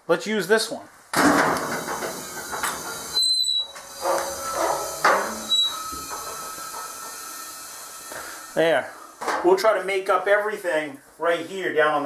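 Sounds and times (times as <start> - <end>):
compressed air hissing: 1.6 - 10.0
lift mechanism squeaking: 1.8 - 8.6.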